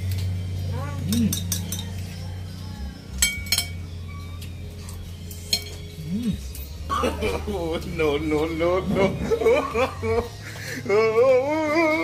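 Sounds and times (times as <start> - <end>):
cutlery clinking on plates: 1.0 - 2.2, 3.2 - 3.8, 4.4 - 5.9.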